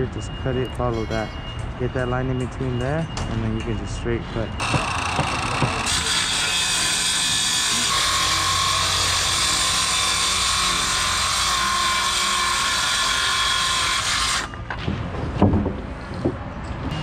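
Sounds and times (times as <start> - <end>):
knocks: 4.6 - 6.0
circular saw cutting plywood: 4.6 - 14.7.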